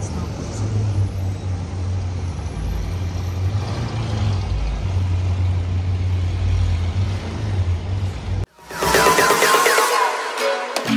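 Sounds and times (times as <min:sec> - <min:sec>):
city street traffic rumble: 0:00.0 - 0:08.5.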